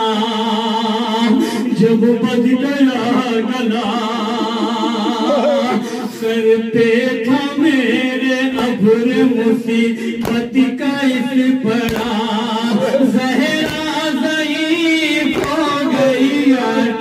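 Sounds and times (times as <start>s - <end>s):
man singing a lament: 0.0s - 17.0s
sharp slaps: 10.2s - 10.8s, 11.8s - 12.4s, 13.0s - 16.4s.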